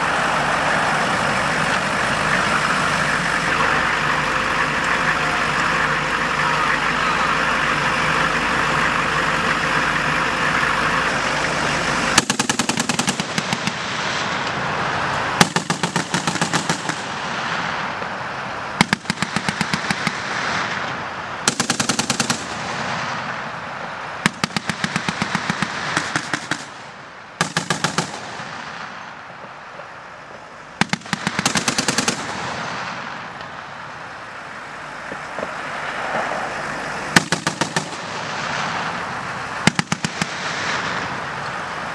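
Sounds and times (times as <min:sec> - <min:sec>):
heavy vehicle engine running: 0:00.0 - 0:41.9
machine-gun fire bursts: 0:12.2 - 0:14.0, 0:15.4 - 0:17.3, 0:18.8 - 0:20.4, 0:21.5 - 0:23.0, 0:24.2 - 0:26.8, 0:27.4 - 0:28.6, 0:30.8 - 0:32.8, 0:37.2 - 0:38.2, 0:39.6 - 0:41.1.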